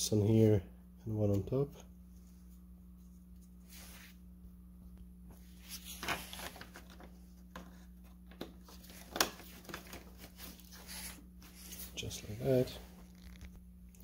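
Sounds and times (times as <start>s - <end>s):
steady low hum: 0.0s - 14.0s
plastic scraping and rustling: 5.6s - 13.6s.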